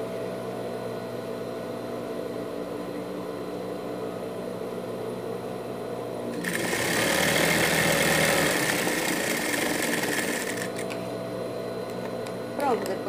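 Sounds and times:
sewing machine stitching: 6.4 - 10.9.

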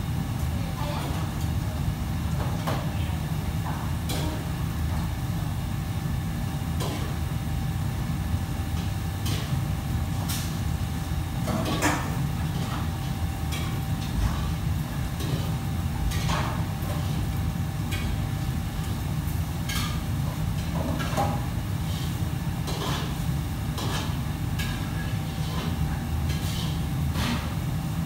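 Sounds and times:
faint constant hum: 0.0 - 28.0
low kitchen rumble: 0.0 - 28.0
metal utensils and pots clattering: 11.4 - 14.6, 15.2 - 17.3, 19.6 - 27.5.

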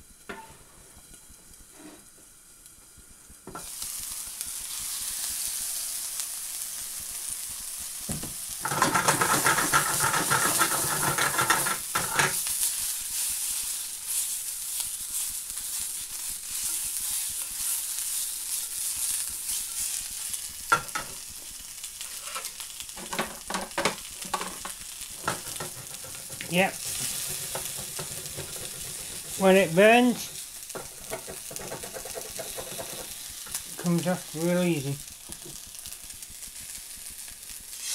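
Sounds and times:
food sizzling in a frying pan: 0.0 - 37.9
spatula scraping a pan: 1.7 - 2.1, 8.6 - 12.4, 22.0 - 23.4, 24.2 - 33.6
pan rattling: 24.3 - 29.5, 30.1 - 33.1.

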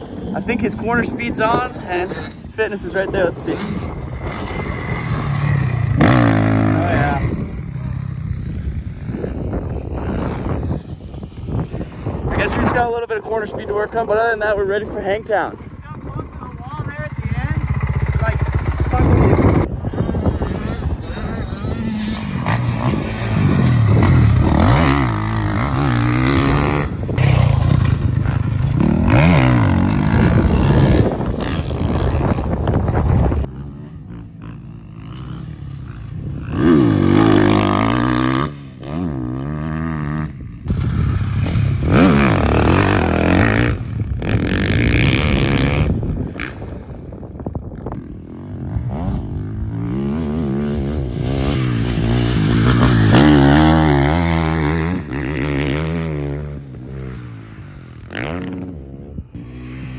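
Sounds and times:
dirt bike engines revving: 0.0 - 59.9.

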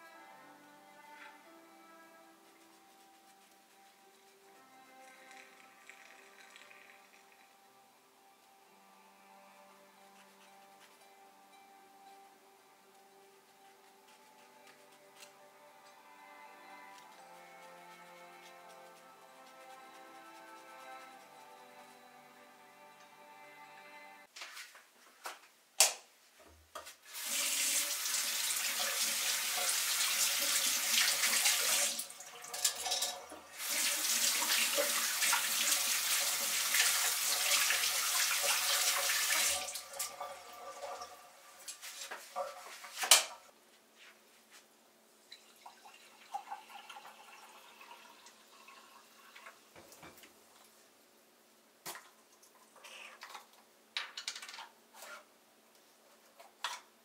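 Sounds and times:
tap water running into sink: 27.1 - 43.3, 45.3 - 50.2.

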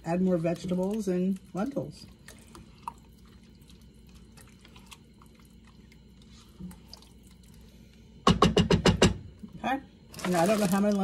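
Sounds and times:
spatula stirring wet mixture: 0.0 - 7.8.

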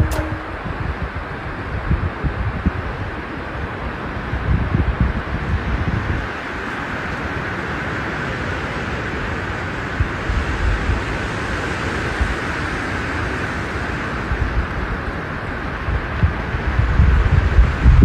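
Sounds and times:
wind buffeting microphone: 0.0 - 7.5, 13.6 - 18.0
rushing wind: 0.0 - 18.0.

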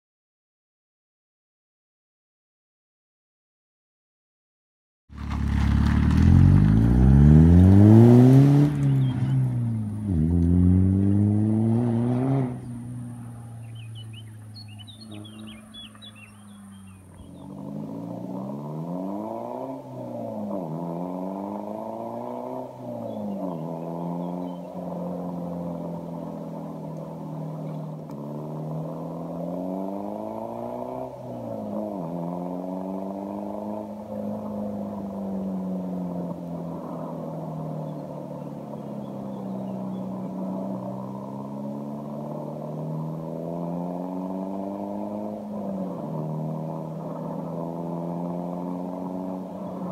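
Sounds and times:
diesel car engine revving: 5.1 - 49.9.

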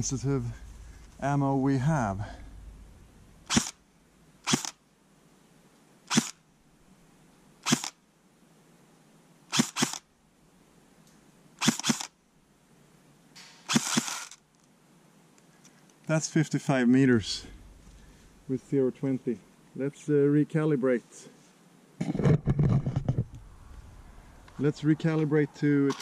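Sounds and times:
airsoft gun firing: 3.5 - 3.8, 4.4 - 4.8, 6.1 - 6.4, 7.6 - 8.0, 9.5 - 10.0, 11.6 - 12.1, 13.4 - 14.3.

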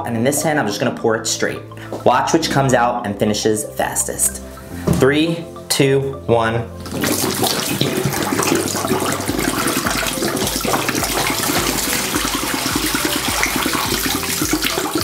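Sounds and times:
water glugging from bottle: 6.8 - 15.0
water pouring smoothly into sink: 6.9 - 15.0.

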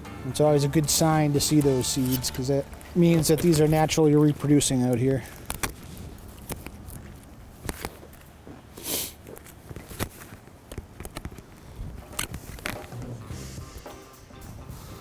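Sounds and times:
tool clicking and scraping shell: 1.5 - 3.6, 12.0 - 13.0.

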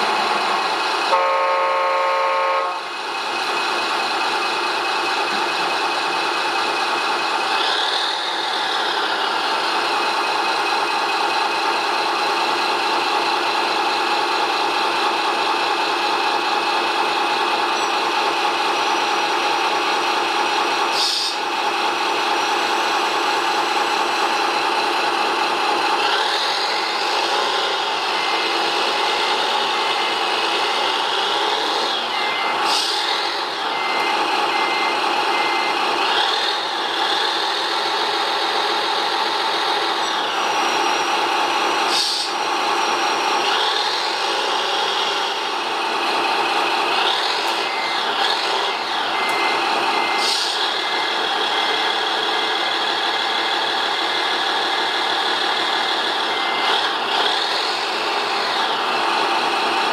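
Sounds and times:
warning beeper: 31.8 - 35.8, 47.5 - 51.2
short hisses: 41.9 - 42.3.

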